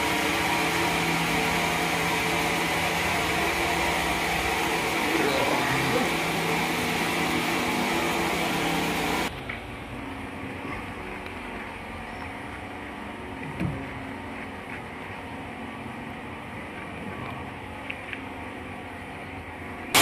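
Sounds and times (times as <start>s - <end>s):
sawmill machinery humming: 0.0s - 9.3s.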